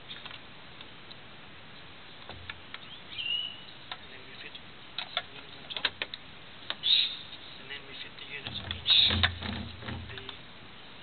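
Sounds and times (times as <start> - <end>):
bird chirping: 2.7 - 4.6, 6.6 - 7.6, 8.6 - 9.5.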